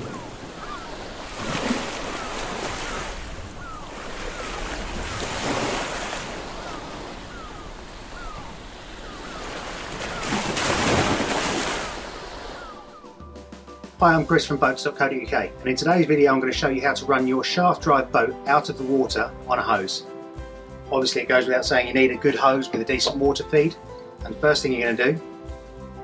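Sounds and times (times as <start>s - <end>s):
faint gull cries: 0.0s - 4.8s, 6.2s - 11.0s, 12.4s - 13.4s
sea waves washing in: 0.0s - 13.2s.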